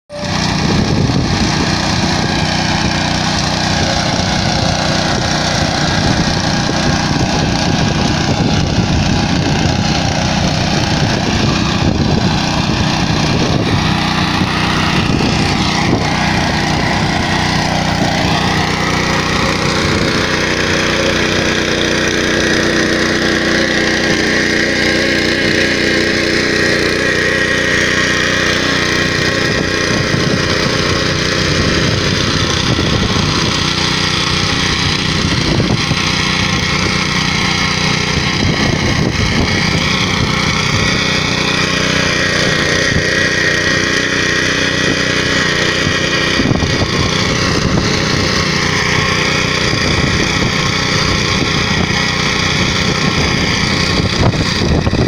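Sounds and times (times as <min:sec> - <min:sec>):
petrol engine running under load: 0:00.1 - 0:55.0
rotary tines tilling soil: 0:00.1 - 0:55.0.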